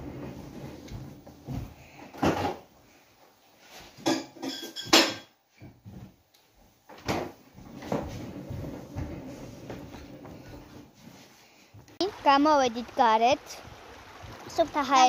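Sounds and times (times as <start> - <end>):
dishes and cutlery clinking: 4.0 - 5.4.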